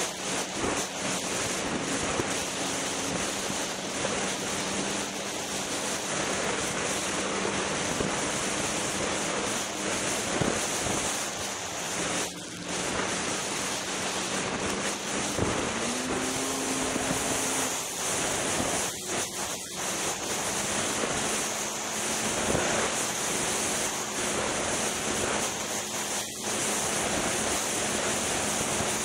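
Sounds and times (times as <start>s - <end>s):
snowmobile engine drone: 0.0s - 29.0s
wind rushing over microphone: 0.0s - 29.0s.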